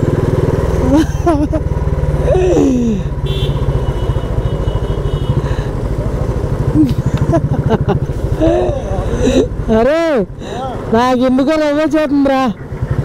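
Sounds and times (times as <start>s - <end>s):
motorcycle engine running: 0.0s - 13.0s
person exclaiming: 2.2s - 3.1s.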